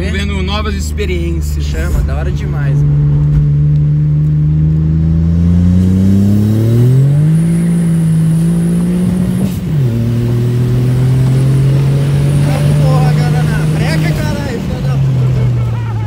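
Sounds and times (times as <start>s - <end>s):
car engine accelerating hard: 0.0s - 16.0s.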